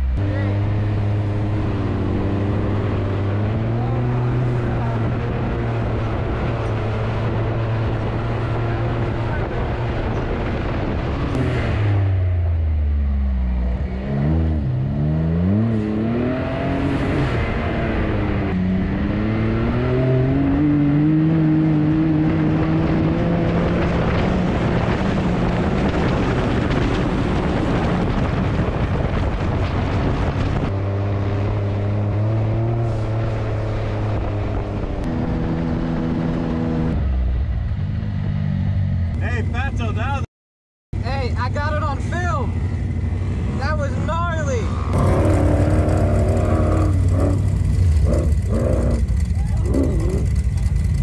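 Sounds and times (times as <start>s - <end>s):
utility vehicle engine revving: 0.0s - 40.2s, 41.4s - 51.0s
rush of wind and sand: 0.1s - 12.6s, 15.5s - 38.4s.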